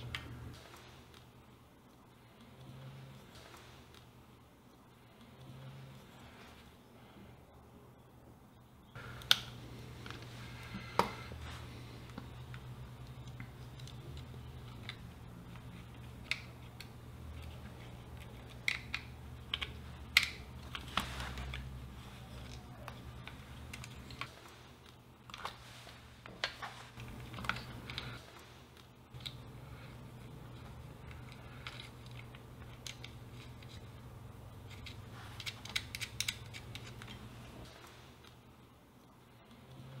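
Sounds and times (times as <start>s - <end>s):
low steady hum: 0.0s - 40.0s
plastic parts clicking together: 12.1s - 21.8s, 22.4s - 25.6s, 30.5s - 34.0s, 34.6s - 37.3s.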